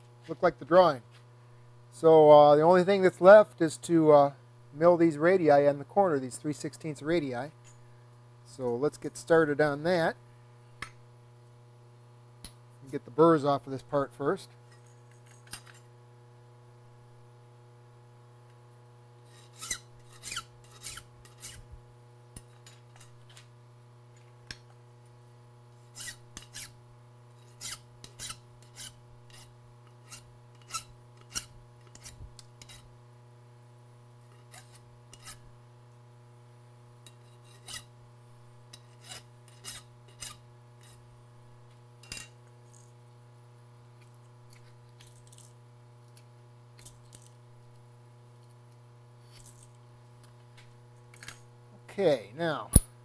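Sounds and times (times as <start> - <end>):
file scraping metal: 19.2 - 21.7, 25.8 - 26.8, 27.4 - 32.9, 34.2 - 35.5, 37.1 - 38.0, 38.8 - 41.1, 42.0 - 42.4.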